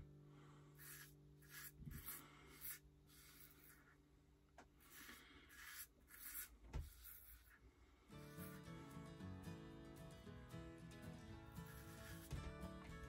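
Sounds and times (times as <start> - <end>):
razor scraping over scalp: 0.8 - 4.0, 4.8 - 7.6, 8.2 - 8.8, 11.5 - 12.4.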